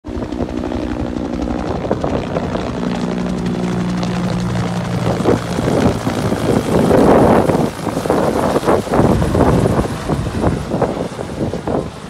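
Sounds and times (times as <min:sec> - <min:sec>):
helicopter passing overhead: 0:00.0 - 0:12.0.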